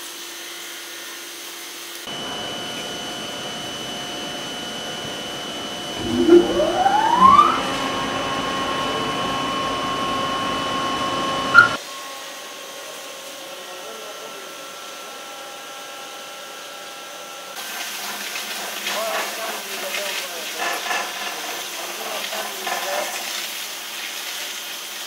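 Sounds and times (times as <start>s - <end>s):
steady machine hum: 2.1s - 11.8s
machine whine: 2.1s - 16.3s.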